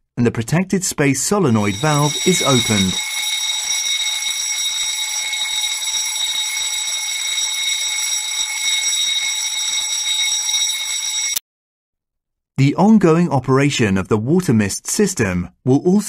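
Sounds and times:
fire alarm continuous tone: 1.5s - 11.4s.

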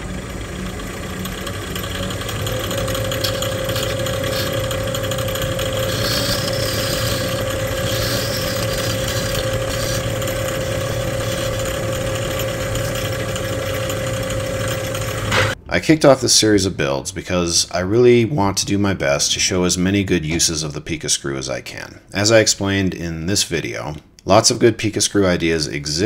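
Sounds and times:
lathe motor whine and hum: 0.0s - 15.6s
turning tool scraping workpiece: 1.2s - 15.6s.

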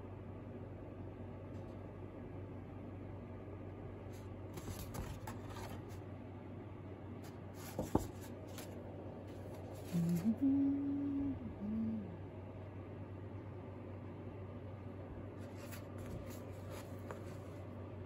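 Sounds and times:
paper rustling: 4.1s - 6.0s, 7.2s - 10.3s, 15.4s - 17.7s.

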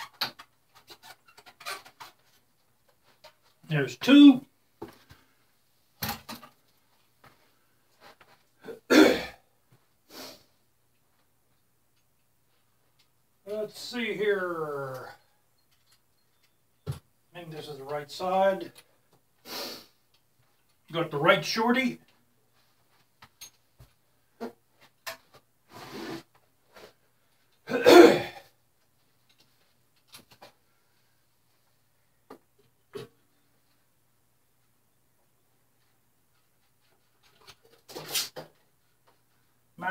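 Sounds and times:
man coughing: 8.6s - 9.4s, 27.7s - 28.5s.

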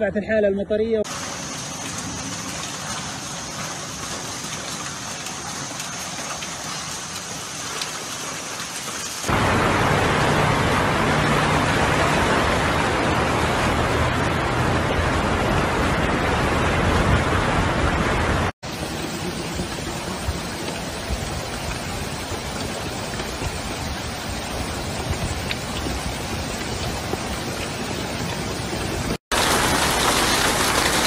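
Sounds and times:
running water: 1.0s - 31.0s
cars driving through water: 1.1s - 31.0s
floodwater rushing: 1.1s - 31.0s
rain hissing: 1.1s - 31.0s.

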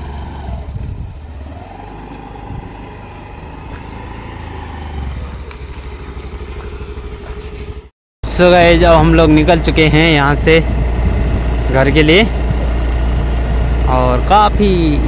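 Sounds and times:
scooter engine whine: 0.0s - 15.0s.

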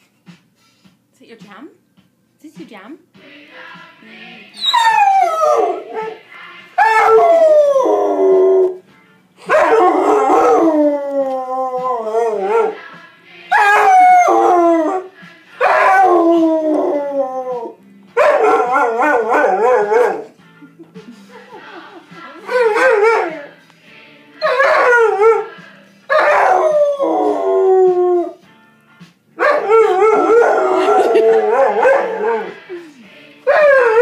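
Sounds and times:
music: 0.0s - 34.0s
dog howling: 4.6s - 6.2s, 6.8s - 8.8s, 9.5s - 12.8s, 13.5s - 20.3s, 22.5s - 23.5s, 24.4s - 28.4s, 29.4s - 34.0s.

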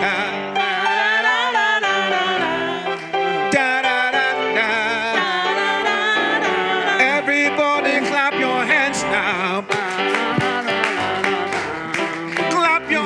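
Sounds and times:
voices singing with vibrato: 0.0s - 13.0s
congregation hand claps: 2.4s - 4.2s, 9.5s - 13.0s
church band drums and keyboard: 7.5s - 13.0s.

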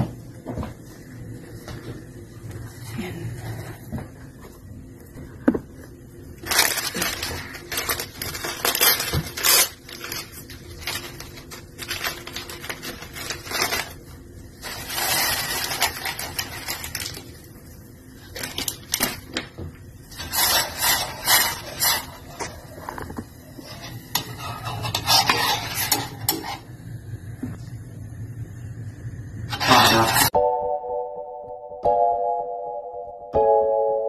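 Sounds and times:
rustling scrapes: 14.6s - 17.2s, 20.1s - 26.7s, 29.5s - 30.3s.

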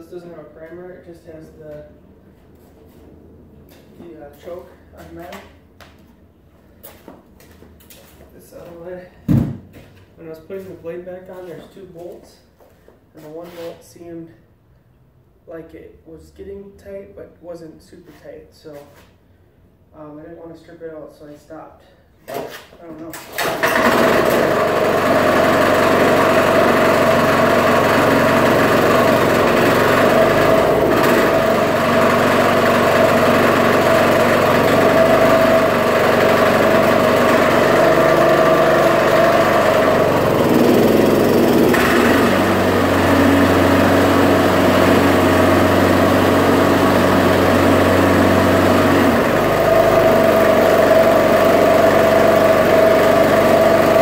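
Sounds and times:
lawnmower engine running: 23.4s - 54.0s.

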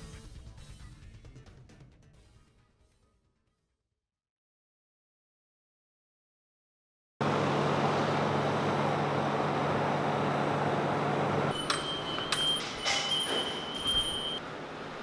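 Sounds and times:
street noise with low hum: 7.2s - 15.0s
sharp clicks and clinks: 11.5s - 14.4s.

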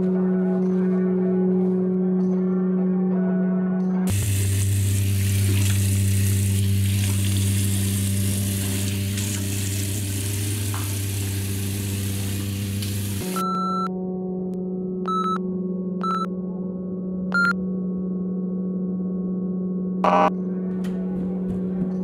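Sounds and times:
tap running into a sink: 5.2s - 6.0s, 8.5s - 11.3s
microwave keypad beep: 13.3s - 13.9s, 15.1s - 15.4s, 16.0s - 16.3s, 17.3s - 17.6s.

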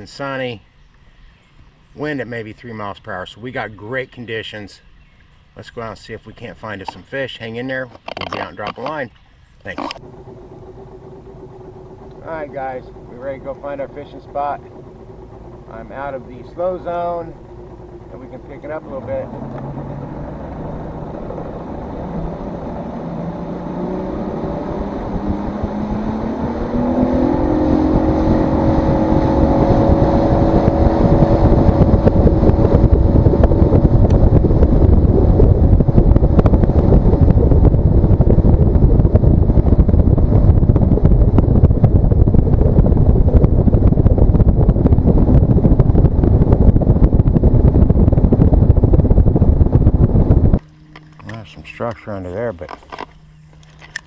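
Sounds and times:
boat motor revving: 9.6s - 54.0s
water noise: 9.7s - 54.0s
wind rush on microphone: 9.9s - 51.9s.

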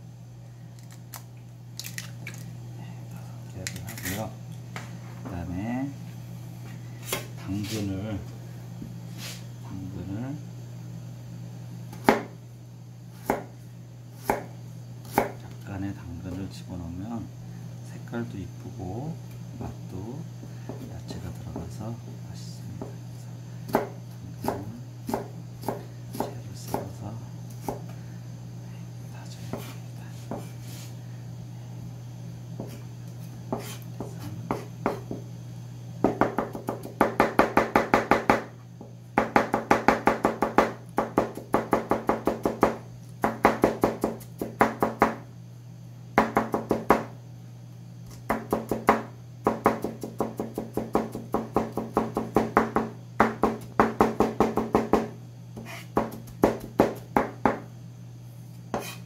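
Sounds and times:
steady low hum: 0.0s - 59.0s
knife chopping on cutting board: 11.9s - 12.4s, 13.2s - 13.5s, 14.2s - 15.4s, 23.7s - 26.9s, 27.6s - 27.9s, 29.5s - 30.5s, 33.5s - 35.2s, 36.0s - 45.2s, 46.2s - 47.1s, 48.1s - 57.7s, 58.7s - 59.0s.

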